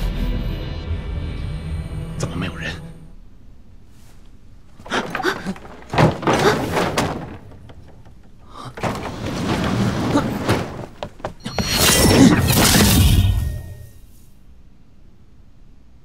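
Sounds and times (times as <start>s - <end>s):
heavy door-like thuds: 4.8s - 11.5s.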